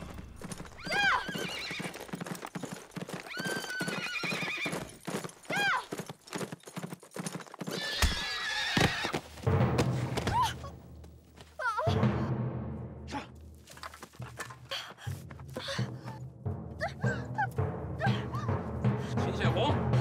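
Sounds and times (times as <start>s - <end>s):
horse hooves clattering: 0.0s - 11.6s, 13.4s - 16.4s
horse whinnying: 0.7s - 2.2s, 3.1s - 5.9s, 7.6s - 9.2s.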